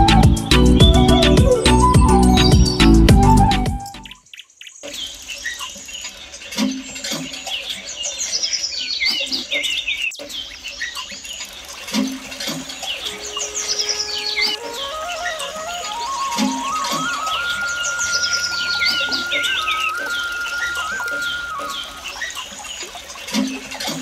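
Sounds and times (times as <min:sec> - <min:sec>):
soft low thumps: 0:00.0 - 0:03.9
background music: 0:00.0 - 0:04.2, 0:13.2 - 0:22.0
small birds chirping: 0:12.6 - 0:24.0.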